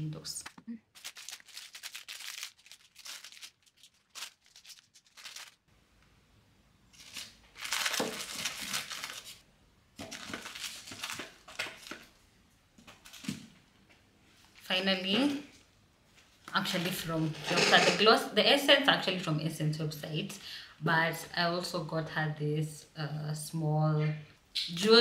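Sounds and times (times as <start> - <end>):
tissue paper crinkling: 0.9 - 5.7, 6.9 - 9.4, 10.0 - 12.0.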